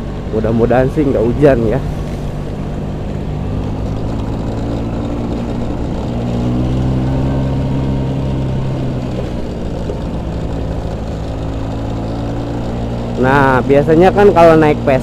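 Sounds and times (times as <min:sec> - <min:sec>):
scooter engine running: 0:00.0 - 0:15.0.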